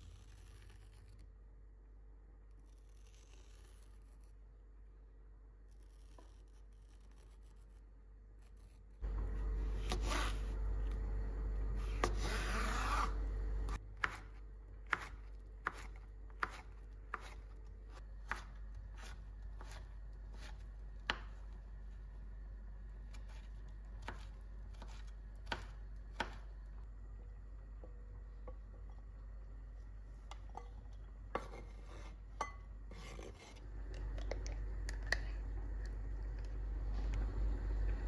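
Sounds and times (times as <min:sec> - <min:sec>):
knife slicing on cutting board: 0:09.7 - 0:10.6.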